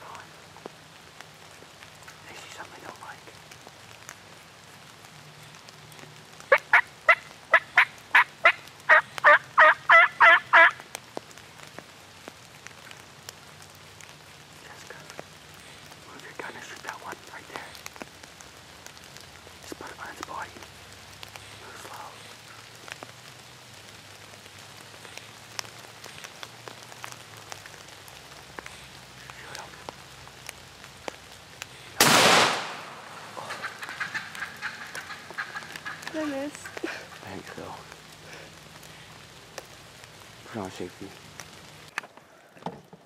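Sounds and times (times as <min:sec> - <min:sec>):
rain falling on leaves: 0:00.0 - 0:43.0
turkey yelping: 0:06.5 - 0:10.8, 0:33.2 - 0:36.8.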